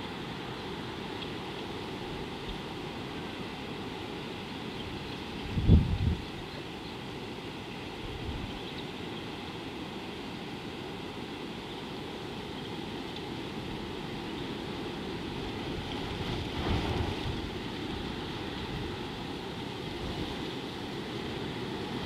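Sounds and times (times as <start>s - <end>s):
wind rumbling on microphone: 4.9s - 6.5s, 15.1s - 20.8s.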